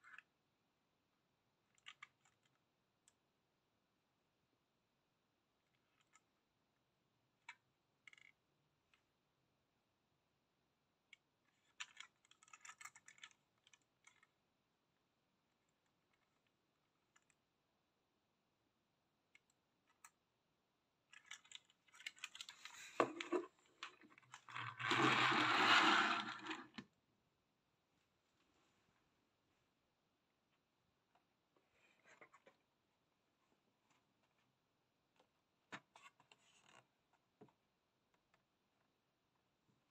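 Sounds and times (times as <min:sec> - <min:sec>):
toy wheels rolling on desk: 0:22.2 - 0:26.8.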